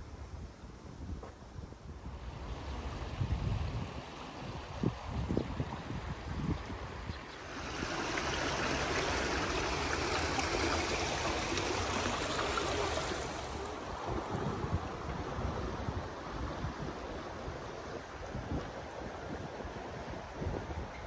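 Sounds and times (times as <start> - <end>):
wind rumbling on microphone: 0.0 - 21.0
river water rushing over rocks: 7.4 - 17.6.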